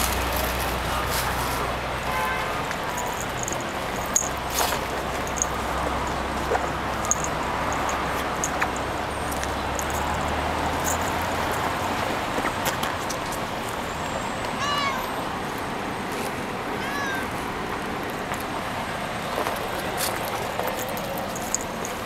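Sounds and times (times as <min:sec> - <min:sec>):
cat meowing: 0:14.6 - 0:15.1, 0:16.8 - 0:17.3.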